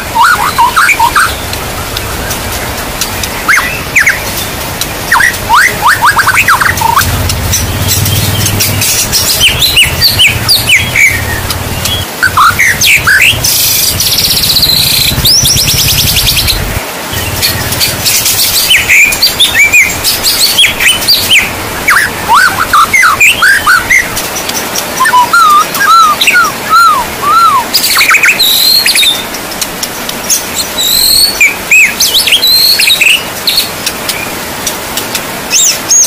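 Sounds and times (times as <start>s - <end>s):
bird singing whistled phrases: 0.0s - 1.4s, 3.5s - 4.3s, 5.1s - 16.6s, 17.2s - 24.2s, 25.0s - 29.2s, 30.6s - 34.3s
high buzzing trill: 0.0s - 28.8s
steady rain: 0.0s - 36.0s.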